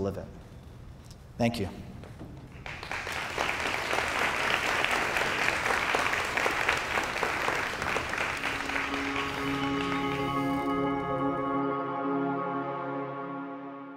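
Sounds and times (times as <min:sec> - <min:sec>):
audience applauding: 0:02.5 - 0:11.2
soft ambient music: 0:08.2 - 0:13.9.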